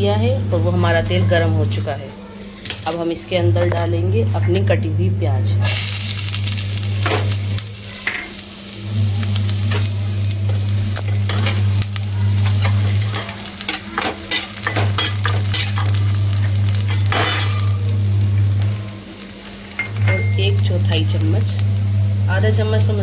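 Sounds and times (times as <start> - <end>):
loud low hum: 3.3 - 23.0
onion sizzling in hot oil: 5.6 - 23.0.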